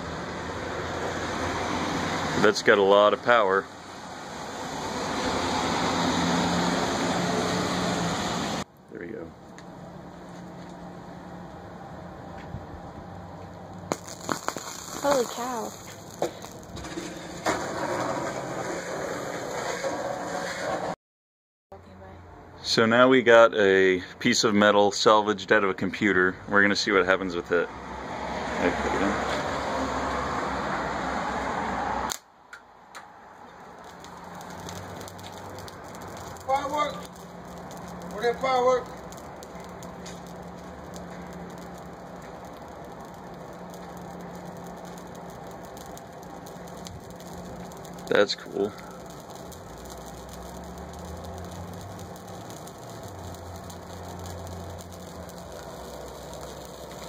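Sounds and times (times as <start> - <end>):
scattered crackles: 13.4 - 21.0, 33.0 - 57.0
transformer humming: 13.7 - 18.6, 33.4 - 57.0.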